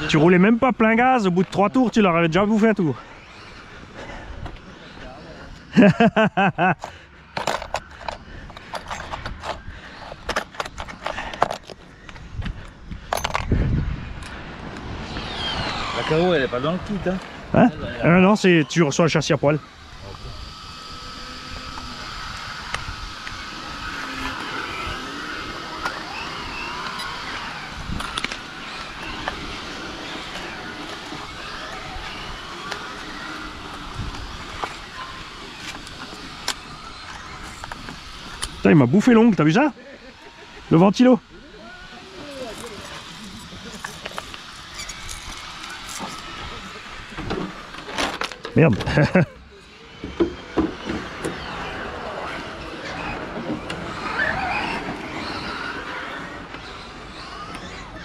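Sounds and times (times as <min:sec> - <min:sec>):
model car motors whining: 0:00.0 - 0:58.0
burst of laughter: 0:05.7 - 0:06.9, 0:39.8 - 0:40.7, 0:48.8 - 0:49.6
small tools clicking and clinking: 0:06.8 - 0:11.8, 0:13.1 - 0:13.6, 0:42.2 - 0:46.3.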